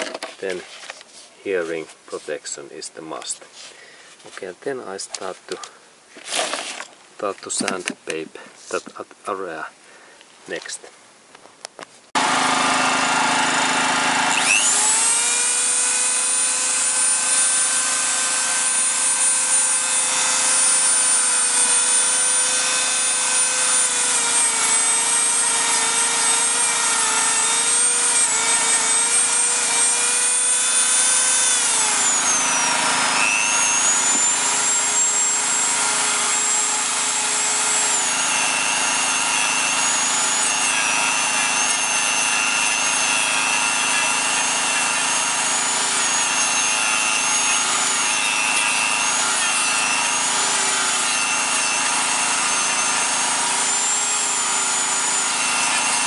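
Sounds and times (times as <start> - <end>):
rotary tool sanding whine: 12.2 - 56.0.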